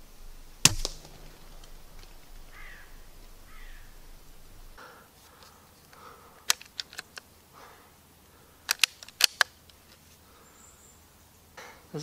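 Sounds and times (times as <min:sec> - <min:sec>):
air rifle mechanical clicks: 0:00.7 - 0:07.3, 0:08.6 - 0:10.0.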